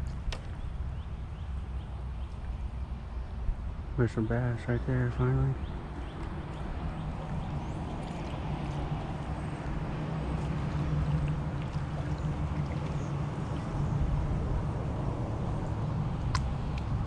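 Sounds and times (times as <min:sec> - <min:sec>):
steady low rumble: 0:00.0 - 0:17.0
water gurgling around kayak: 0:06.7 - 0:17.0.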